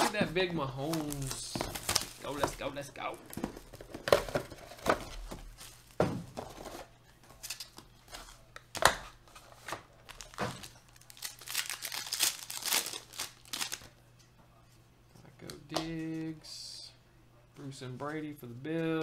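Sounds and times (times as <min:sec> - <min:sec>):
foil wrapper crinkling and tearing: 0:10.0 - 0:13.9.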